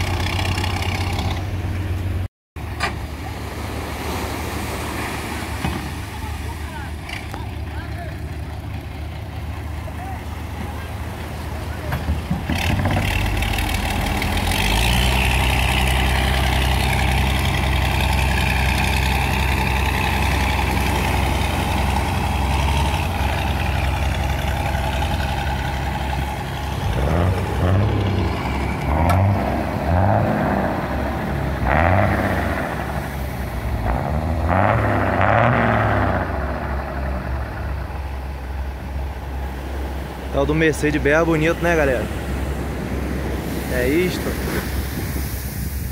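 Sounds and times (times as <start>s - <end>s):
diesel engine revving: 0.0s - 45.5s.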